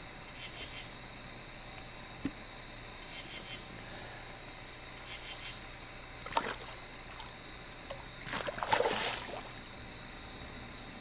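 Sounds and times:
fish splashing at water surface: 6.2 - 7.3, 8.0 - 9.7.

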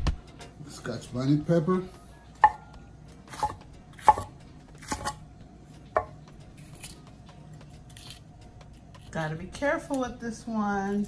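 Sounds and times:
knife chopping on wooden board: 2.4 - 2.7, 3.3 - 5.2.

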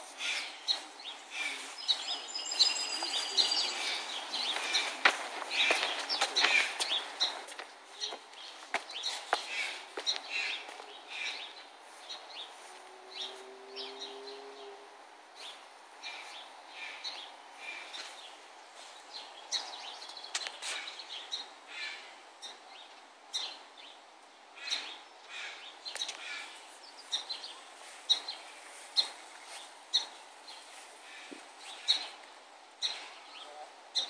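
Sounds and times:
birds chirping: 0.0 - 34.0.

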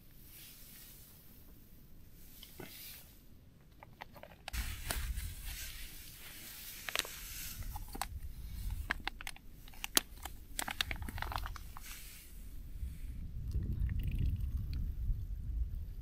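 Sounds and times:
packaging crinkling: 3.8 - 12.1.

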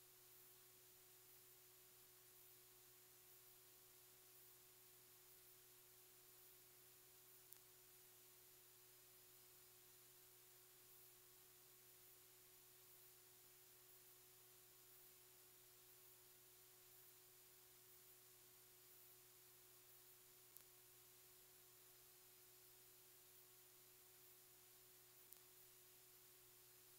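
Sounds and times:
faint low hum: 0.0 - 26.9
faint steady hiss: 0.0 - 26.9
faint tick: 7.4 - 7.8, 20.4 - 20.8, 25.1 - 25.8.

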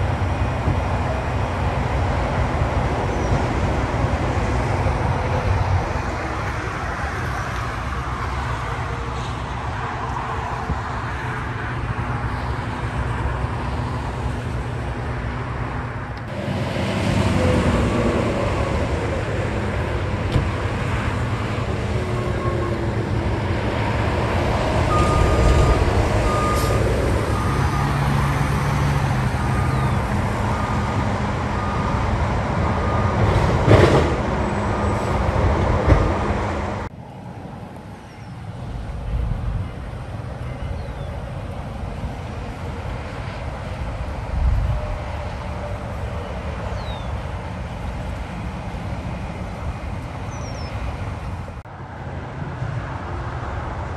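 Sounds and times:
idling truck engines: 0.0 - 51.7
highway traffic: 0.0 - 53.9
backup alarm beeps: 24.9 - 28.1.

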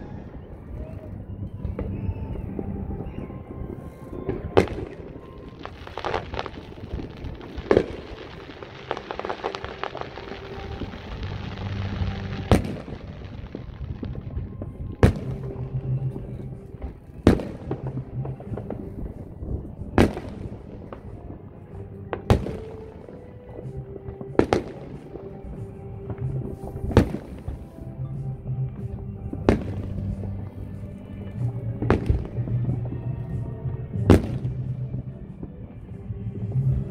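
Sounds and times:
fireworks booming: 0.0 - 36.9
music: 0.0 - 36.9
small firework pops: 4.0 - 36.9.

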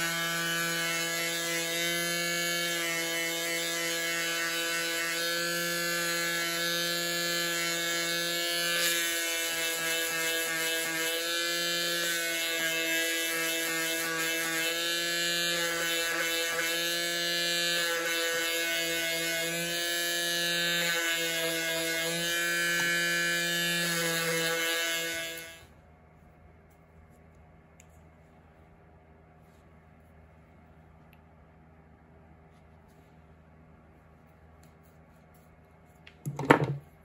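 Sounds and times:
electric sander humming: 0.0 - 25.7.

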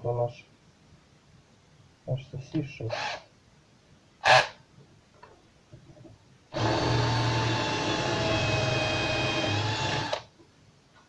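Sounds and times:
electric drill boring plastic: 6.6 - 10.3.

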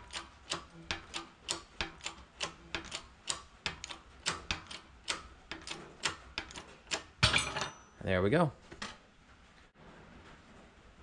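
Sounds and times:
hydraulic press pump ticking: 0.0 - 7.2.

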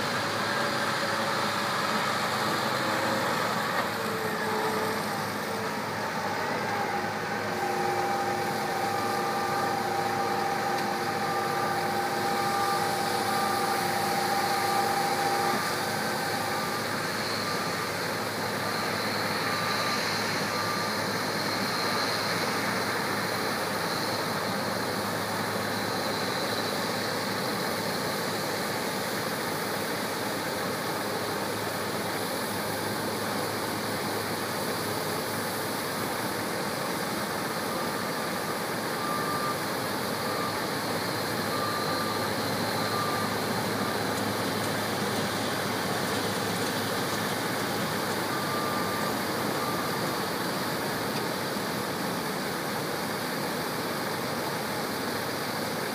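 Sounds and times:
engines droning: 0.0 - 27.2
short faint beeps: 38.9 - 46.6.

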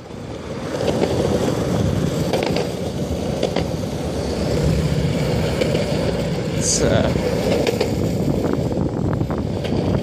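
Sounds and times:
skateboard wheels rolling on concrete: 0.0 - 10.0
skateboard wheels clicking: 0.6 - 6.3.

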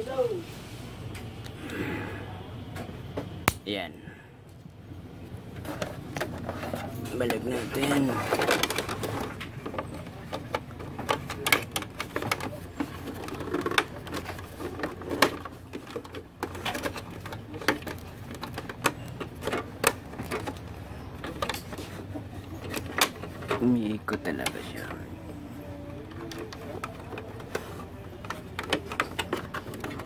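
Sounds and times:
plastic clicks and knocks: 26.0 - 30.0.

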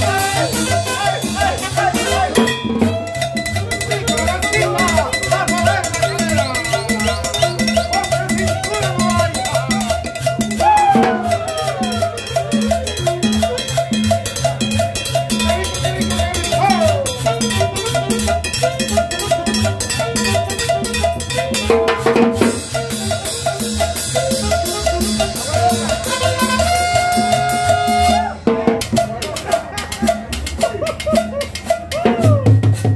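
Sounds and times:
man singing: 0.0 - 2.6
hand drums: 0.0 - 32.9
upright bass: 0.0 - 32.9
saxophone: 16.6 - 21.6, 22.6 - 28.5.

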